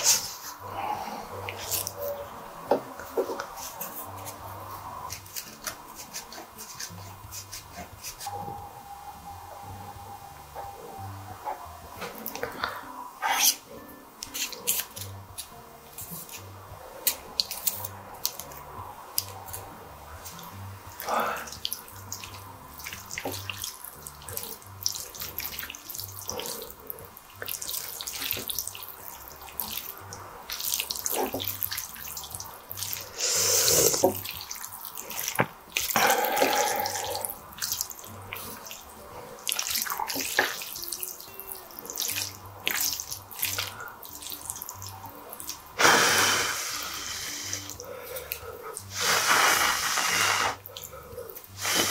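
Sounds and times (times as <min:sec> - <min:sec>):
wet sticky noodles stirring: 0:01.4 - 0:02.2, 0:14.2 - 0:45.8.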